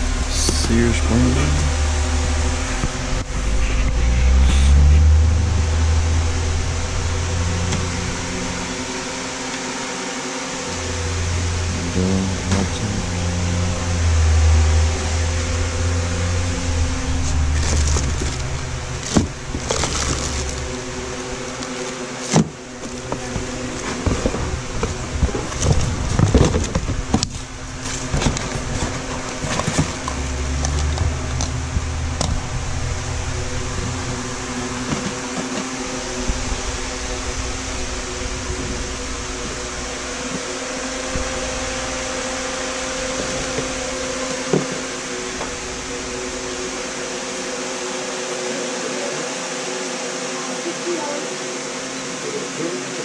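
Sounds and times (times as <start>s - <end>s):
cords and boxes shifting: 0.0s - 49.6s
steady machine hum: 0.0s - 53.0s
rustling plastic bags: 16.6s - 47.1s.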